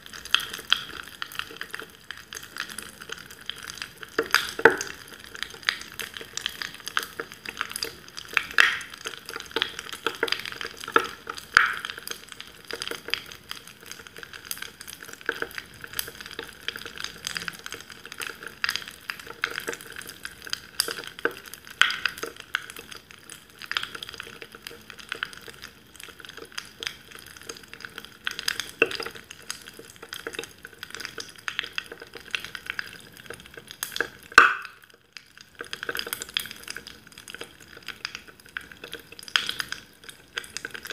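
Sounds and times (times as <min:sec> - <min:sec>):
fizzy bubbles crackling: 0:00.0 - 0:40.9.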